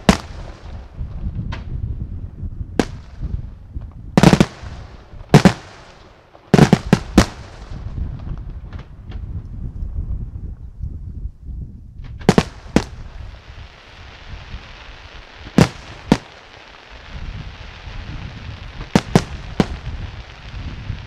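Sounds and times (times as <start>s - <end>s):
low rumble: 7.7s - 13.5s.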